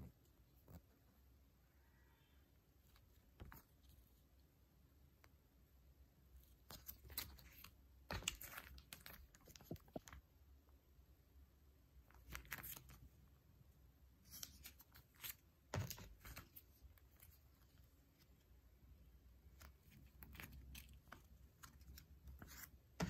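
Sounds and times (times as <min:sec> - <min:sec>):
plastic sleeves crinkling: 0:06.4 - 0:10.2, 0:12.1 - 0:13.2, 0:14.2 - 0:18.5, 0:19.4 - 0:23.0.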